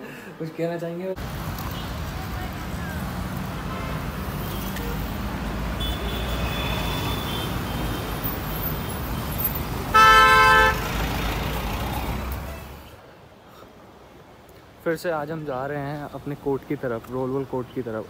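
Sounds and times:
road traffic: 0.0s - 18.0s
vehicle horn honking: 5.8s - 8.0s, 9.9s - 10.9s.

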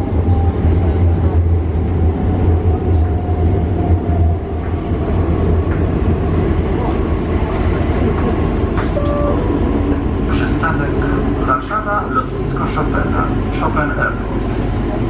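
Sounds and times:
train running gear rumble: 0.0s - 15.0s
brief tone: 9.0s - 9.5s.

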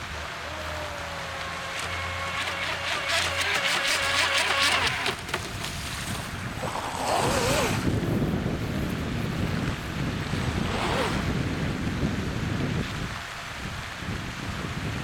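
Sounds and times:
rc boat motor whine: 0.0s - 8.0s
water spray: 1.0s - 7.9s
wind on microphone: 4.2s - 15.0s.

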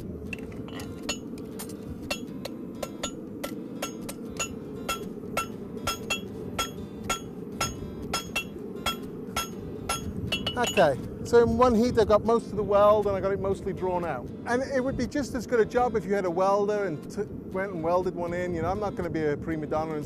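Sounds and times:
steady low rumble: 0.0s - 20.0s
hammer striking steel on anvil: 0.3s - 11.0s.

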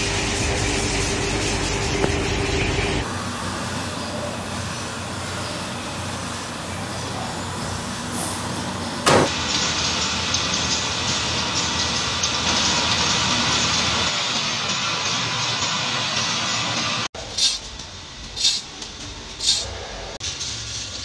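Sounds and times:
factory machine noise: 0.0s - 21.0s
sharp knock: 9.1s - 9.4s.

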